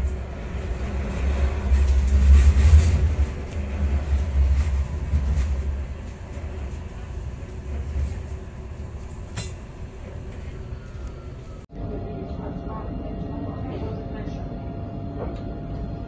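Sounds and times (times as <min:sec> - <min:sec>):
tram running gear rumble: 0:00.0 - 0:16.0.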